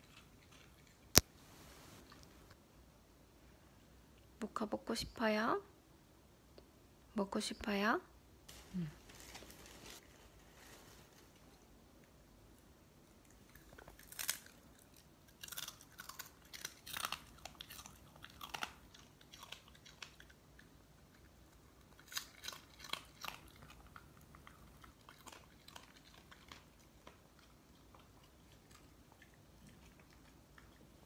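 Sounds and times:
dog chewing crunchy treats: 0:13.3 - 0:31.0.

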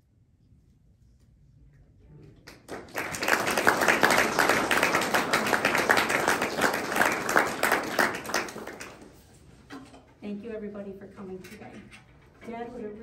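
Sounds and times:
audience applause: 0:02.5 - 0:09.2.

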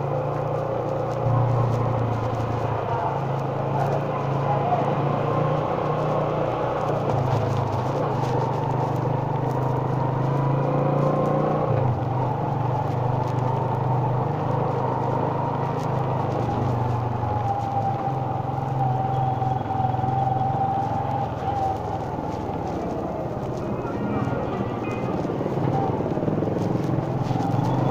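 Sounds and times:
motorcycle engine running: 0:00.0 - 0:27.9.

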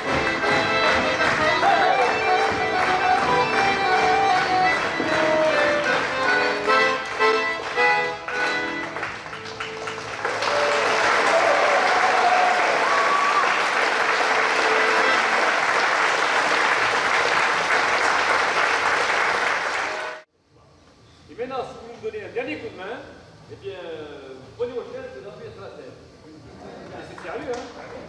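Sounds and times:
accordion tune: 0:00.0 - 0:10.1, 0:14.0 - 0:15.9, 0:19.7 - 0:20.2
audience clapping: 0:00.0 - 0:20.3, 0:27.1 - 0:28.0.

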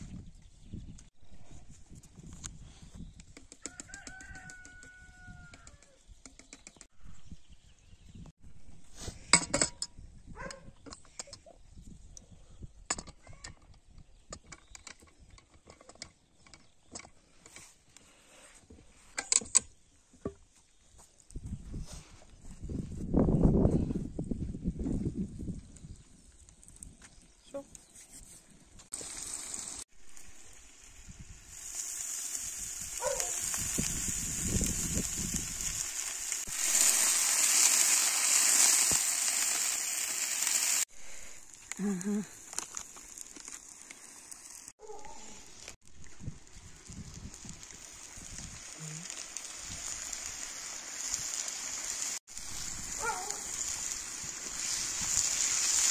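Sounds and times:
water pouring and splashing: 0:28.9 - 0:40.9, 0:46.0 - 0:55.9
loud sizzling hiss: 0:28.9 - 0:41.5, 0:46.7 - 0:55.9.

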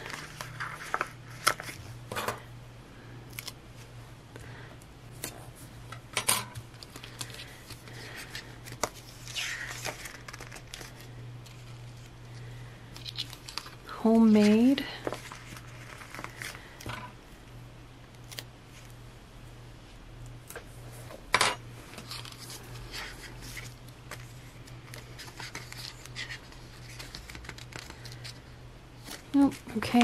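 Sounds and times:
paper rustling: 0:00.0 - 0:01.9, 0:06.7 - 0:12.1, 0:13.0 - 0:16.7, 0:21.9 - 0:28.4
paper clicks and crinkles: 0:00.0 - 0:02.0, 0:06.6 - 0:16.9, 0:21.9 - 0:30.0
steady low hum: 0:00.0 - 0:30.0.

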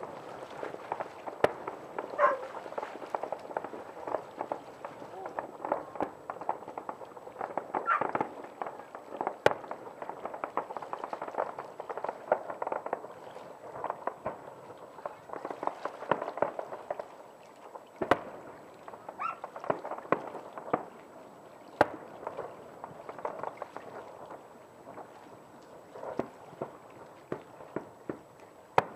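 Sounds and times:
loud firework bangs: 0:00.0 - 0:17.0, 0:18.0 - 0:21.0, 0:26.0 - 0:28.9
fireworks crackling and popping: 0:00.0 - 0:28.9.

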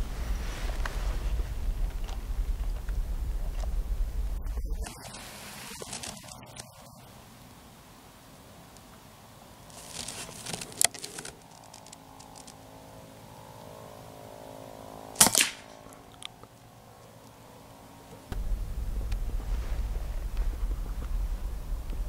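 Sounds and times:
steady low rumble: 0:00.0 - 0:08.3, 0:18.2 - 0:22.0
rifle handling clicks and rustle: 0:04.8 - 0:06.9, 0:09.7 - 0:12.7, 0:15.2 - 0:17.4
air rifle shot crack: 0:15.2 - 0:15.9.

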